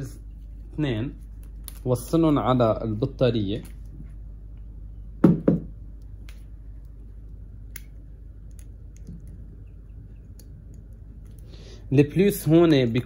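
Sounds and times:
clip leads clicking: 6.0 - 9.5, 10.1 - 11.5.

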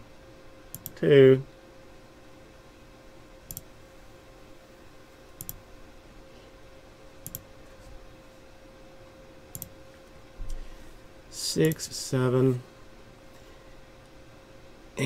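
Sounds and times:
faint steady hum: 0.0 - 15.0
computer mouse clicks: 0.7 - 1.0, 3.5 - 3.7, 5.4 - 5.6, 7.2 - 7.5, 9.5 - 9.7.

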